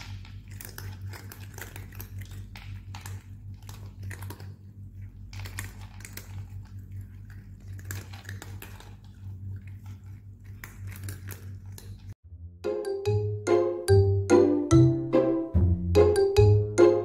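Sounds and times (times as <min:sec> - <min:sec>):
cats crunching dry kibble: 0:00.0 - 0:12.2
low hum: 0:12.2 - 0:17.0
chiming musical tune: 0:12.6 - 0:17.0.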